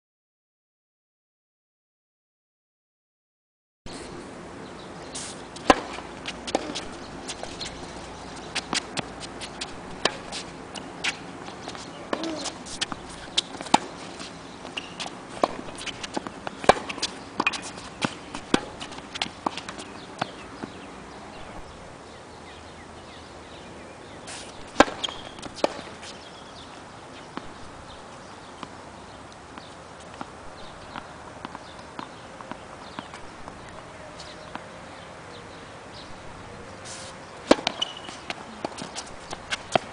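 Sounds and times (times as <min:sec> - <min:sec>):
tennis balls struck with rackets: 0:05.1 - 0:21.9, 0:24.2 - 0:26.1, 0:29.5 - 0:34.7, 0:37.4 - 0:39.9
tennis balls bouncing on court: 0:05.5 - 0:21.9, 0:24.3 - 0:34.8, 0:37.4 - 0:39.9.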